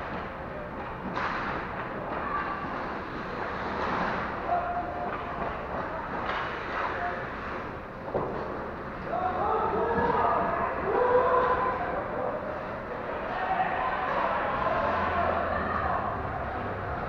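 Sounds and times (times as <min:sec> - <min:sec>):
skates scraping on ice: 0:00.0 - 0:09.1
distant shouts echoing: 0:09.1 - 0:12.5, 0:13.1 - 0:17.0.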